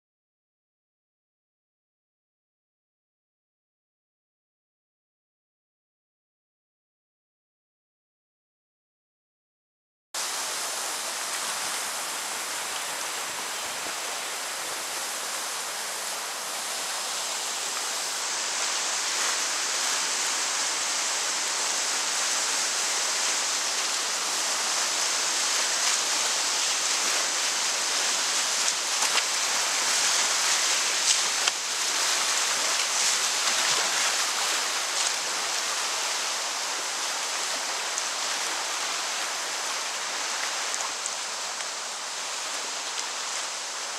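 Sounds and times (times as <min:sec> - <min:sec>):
rushing whitewater: 0:10.2 - 0:43.9
sharp water splashes: 0:21.5 - 0:41.7.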